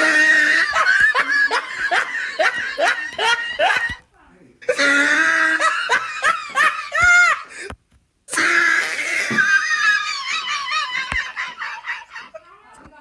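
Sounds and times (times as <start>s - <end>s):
high-pitched human laughter: 0.0s - 4.0s, 8.8s - 12.8s.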